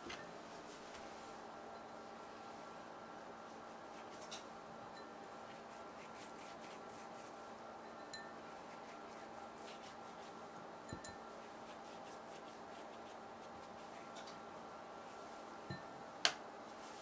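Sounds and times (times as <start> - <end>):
pastry brush dabbing: 5.0 - 14.3.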